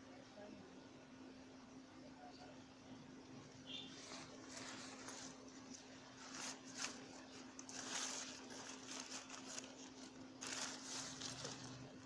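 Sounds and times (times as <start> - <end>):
faint steady hum: 0.0 - 12.0
umbrella rustling and scraping: 3.9 - 12.0.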